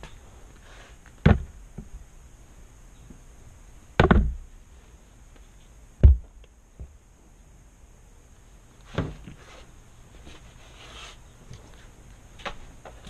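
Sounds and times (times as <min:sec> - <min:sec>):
dull thumps: 0:01.2 - 0:02.0, 0:04.0 - 0:04.5, 0:06.0 - 0:07.0, 0:08.9 - 0:09.4.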